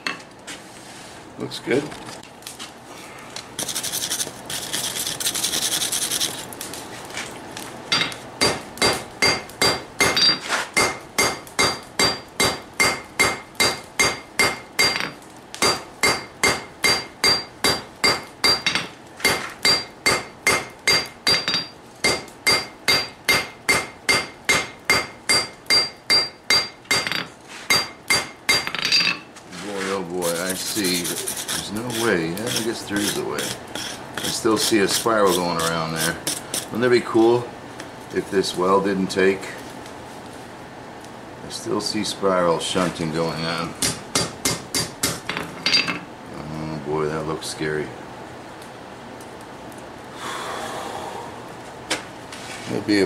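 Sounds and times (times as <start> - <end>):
scratchy hissing: 2.9 - 7.0, 29.5 - 36.8
hammer striking hot steel on anvil: 7.9 - 29.2, 43.7 - 46.0.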